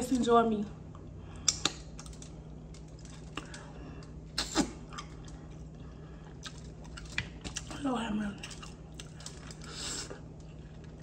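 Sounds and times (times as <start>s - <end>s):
wet mouth smacking and chewing: 1.4s - 7.8s.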